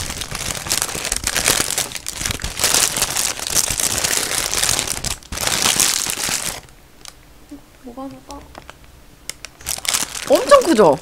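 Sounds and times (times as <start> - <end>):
paper wrapper crinkling: 0.0 - 7.2, 8.4 - 11.0.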